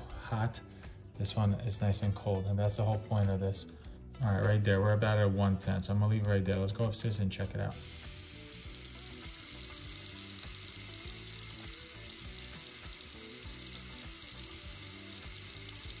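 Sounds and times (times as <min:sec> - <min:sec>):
faucet running into sink: 0:07.7 - 0:16.0.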